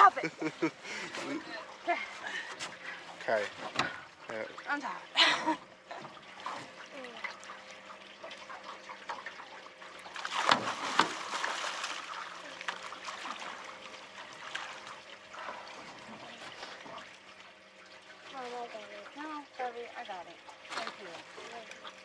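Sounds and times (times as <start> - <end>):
fish thrashing and splashing water: 5.9 - 19.4, 20.3 - 22.0.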